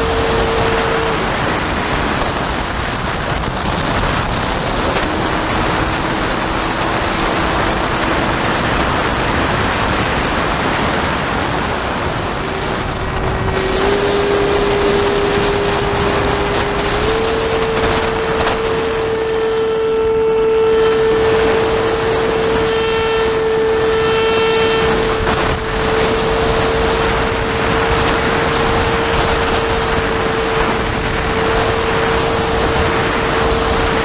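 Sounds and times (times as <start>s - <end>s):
electric motor whine: 0.0s - 34.0s
wind on microphone: 0.0s - 34.0s.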